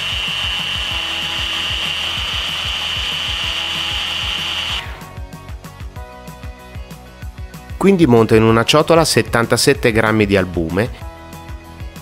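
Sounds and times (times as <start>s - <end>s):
blender motor whining: 0.0s - 5.1s.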